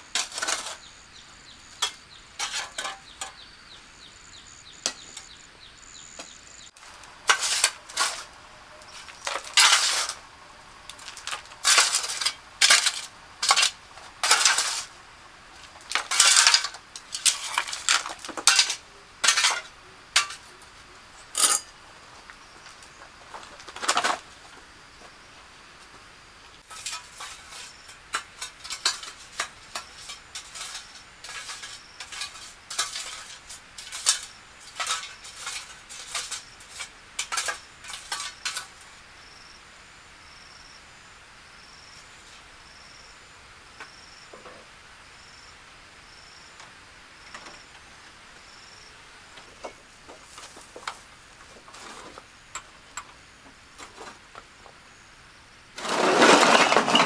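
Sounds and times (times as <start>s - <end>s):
metal tool scraping and clinking: 1.8s - 3.4s, 7.3s - 10.2s, 21.4s - 21.7s, 26.7s - 38.7s.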